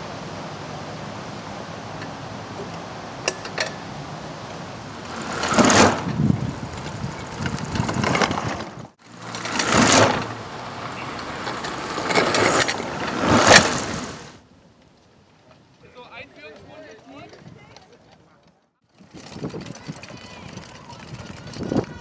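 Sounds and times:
go-kart rolling over paving: 0:04.5 - 0:14.4, 0:17.3 - 0:22.0.

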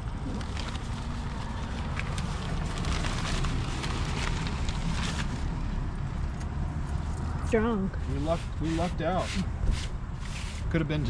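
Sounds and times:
paper rustling: 0:00.2 - 0:05.6.

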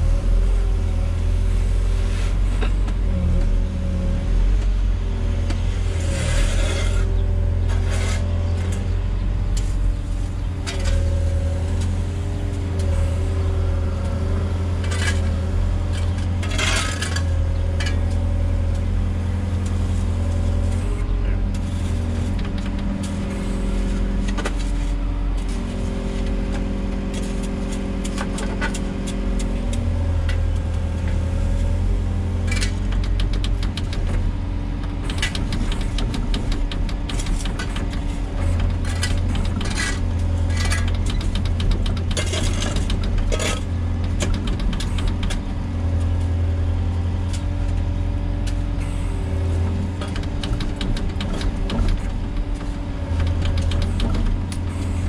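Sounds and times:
excavator diesel engine running: 0:00.0 - 0:55.0
sharp clatters and knocks: 0:14.8 - 0:18.8, 0:19.6 - 0:31.2, 0:32.4 - 0:46.3, 0:49.5 - 0:55.0.

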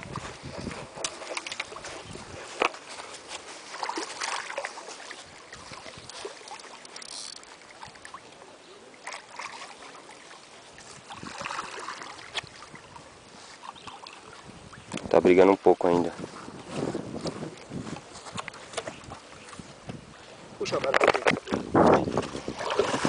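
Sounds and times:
fish splashing in water: 0:02.9 - 0:14.9, 0:22.4 - 0:23.0.

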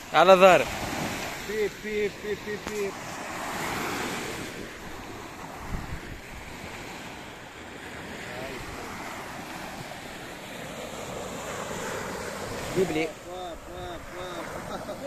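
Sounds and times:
small waves breaking on sand: 0:00.0 - 0:15.0
wind buffeting microphone: 0:00.6 - 0:10.4.

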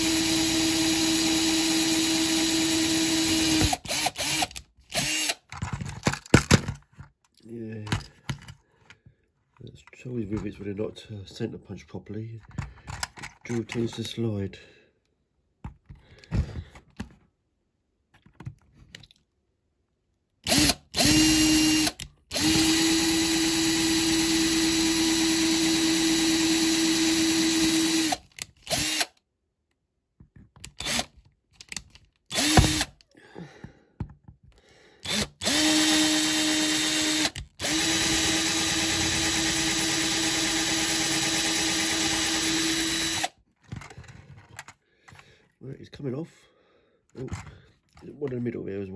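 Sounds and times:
power drill whining: 0:00.0 - 0:05.5, 0:20.4 - 0:29.2, 0:30.8 - 0:31.1, 0:32.3 - 0:33.0, 0:35.0 - 0:43.4.

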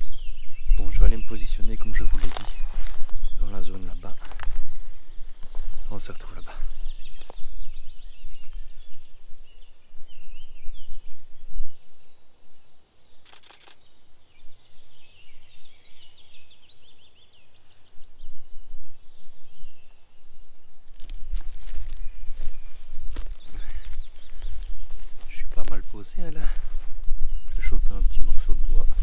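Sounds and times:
songbirds calling and trilling: 0:00.0 - 0:29.0
sharp clicks: 0:13.2 - 0:13.8.

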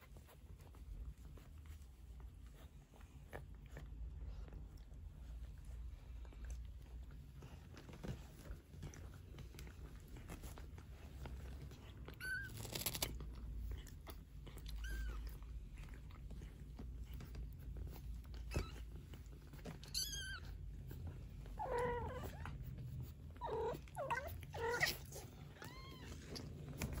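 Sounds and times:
kittens mewing: 0:23.3 - 0:26.4.

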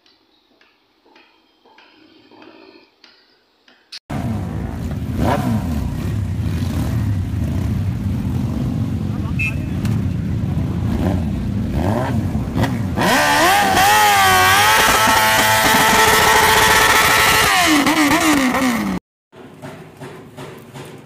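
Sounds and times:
motorcycle engine revving: 0:04.1 - 0:19.0.

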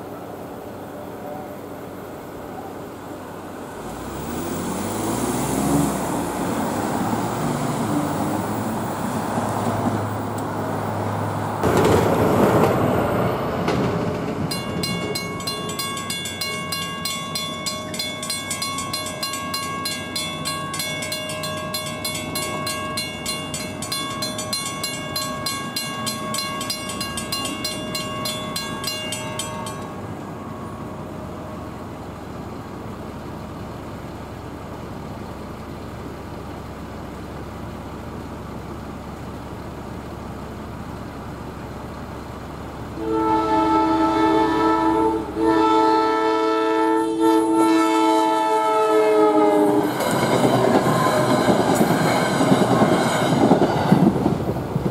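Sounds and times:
crossing warning bell ringing: 0:11.6 - 0:33.7, 0:42.9 - 0:54.4.

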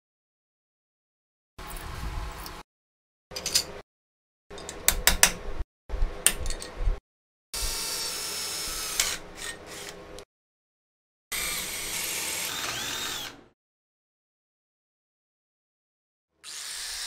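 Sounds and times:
metal parts clicking and knocking: 0:03.3 - 0:03.8
electric drill drilling into steel: 0:07.6 - 0:10.0, 0:11.3 - 0:13.6, 0:16.4 - 0:17.0.

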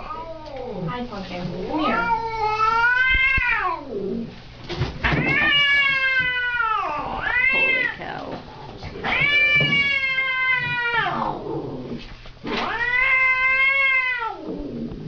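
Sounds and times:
cat yowling: 0:01.8 - 0:04.1, 0:05.1 - 0:08.1, 0:09.0 - 0:11.4, 0:12.5 - 0:14.8.

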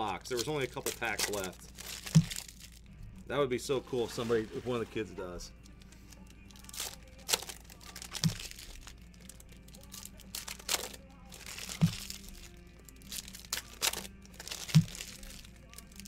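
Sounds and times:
plastic packaging crinkling: 0:00.0 - 0:02.9, 0:05.6 - 0:16.0
faint background music: 0:00.0 - 0:16.0.

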